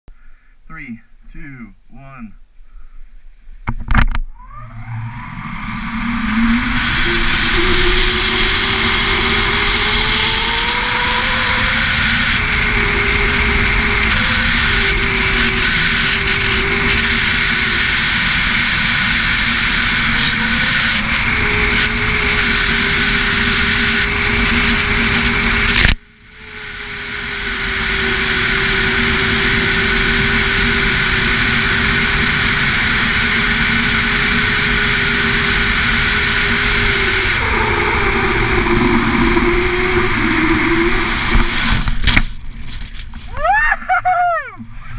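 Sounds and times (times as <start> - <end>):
wavering hum: 1.0 - 44.9
wind on microphone: 3.6 - 42.6
sharp click: 25.7 - 26.0.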